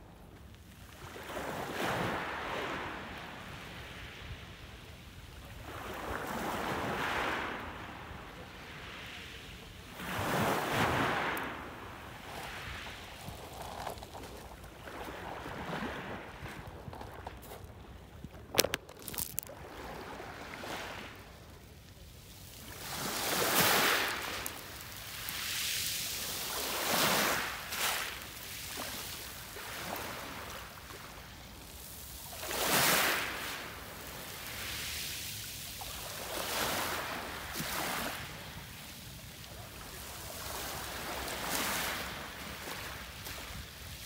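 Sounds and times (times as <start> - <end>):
waves washing onto pebble beach: 10.0 - 17.5, 18.3 - 21.1, 22.3 - 44.0.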